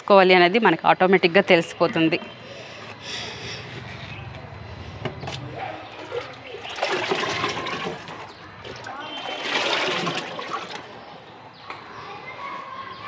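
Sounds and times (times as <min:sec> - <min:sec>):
liquid pouring and splashing: 0:05.2 - 0:11.1.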